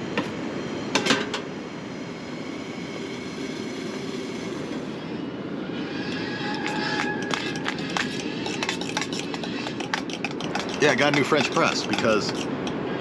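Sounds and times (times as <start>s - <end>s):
coffee stirred with clinks: 6.1s - 12.8s
metal clinks of coffee pot: 8.4s - 12.7s.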